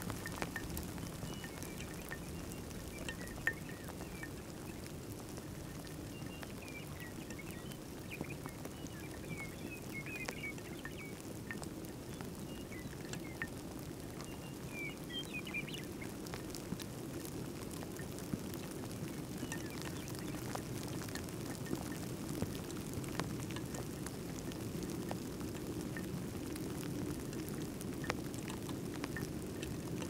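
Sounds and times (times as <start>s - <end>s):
small birds chirping: 0.0s - 16.6s, 18.6s - 22.0s
faint ticks: 0.0s - 30.0s.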